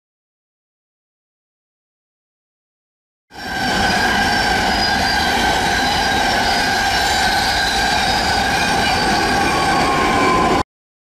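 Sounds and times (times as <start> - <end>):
train wheels rushing on rails: 3.3 - 10.6
high-pitched ringing tones: 3.4 - 10.6.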